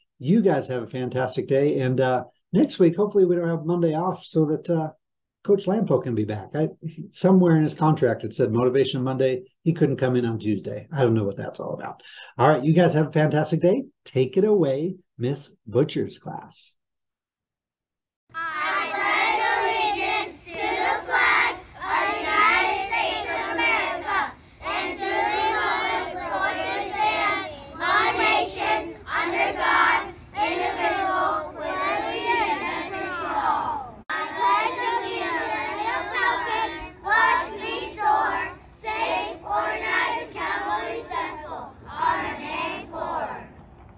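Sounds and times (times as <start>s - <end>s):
children speaking in unison: 18.3s - 43.5s.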